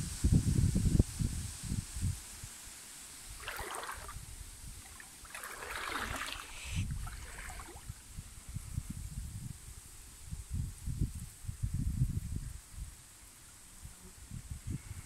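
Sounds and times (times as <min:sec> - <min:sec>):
stream water splashing: 0:03.3 - 0:08.0.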